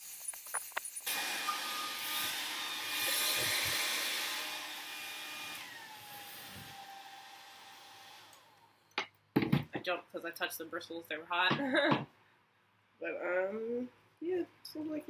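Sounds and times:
blow dryer motor whine: 0:01.1 - 0:08.4.

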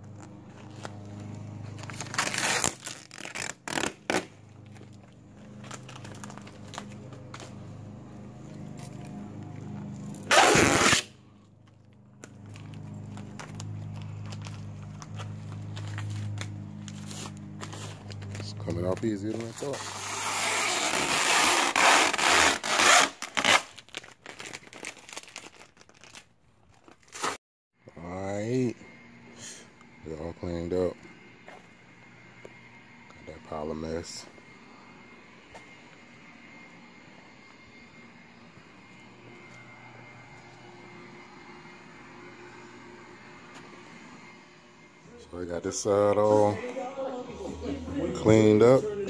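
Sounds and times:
low steady hum: 0:00.0 - 0:20.6
vinyl film tearing and crinkling: 0:00.1 - 0:11.1, 0:11.7 - 0:27.4.

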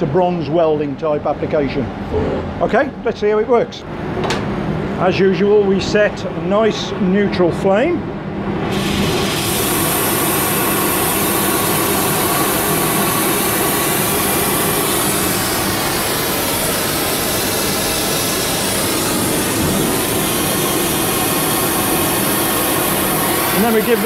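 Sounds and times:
gas torch hissing: 0:08.7 - 0:24.0.

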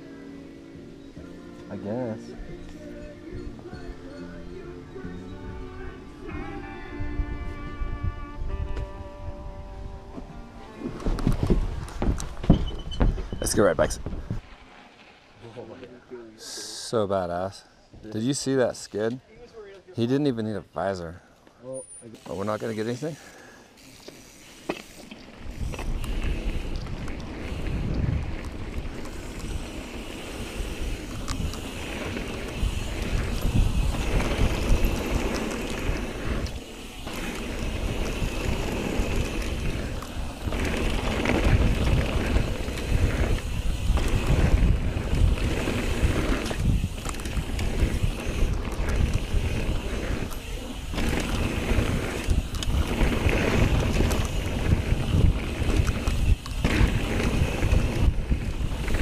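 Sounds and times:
wind rushing over microphone: 0:06.7 - 0:14.4, 0:25.4 - 0:59.0
bike rattling over bumps: 0:23.8 - 0:59.0
tyres rolling on dirt: 0:23.8 - 0:59.0.

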